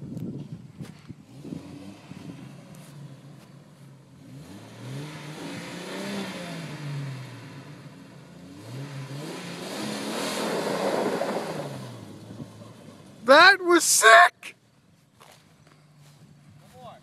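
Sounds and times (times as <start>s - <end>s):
car engine revving: 1.2s - 14.0s
tyres spinning on dirt: 10.0s - 14.3s.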